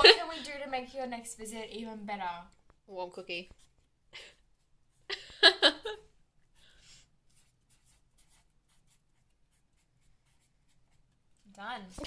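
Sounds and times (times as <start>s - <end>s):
pen scratching on paper: 7.2s - 11.4s.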